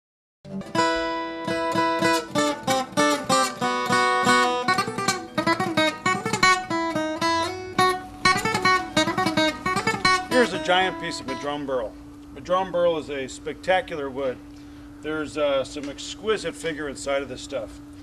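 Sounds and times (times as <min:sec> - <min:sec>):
acoustic guitar: 0:00.4 - 0:13.0.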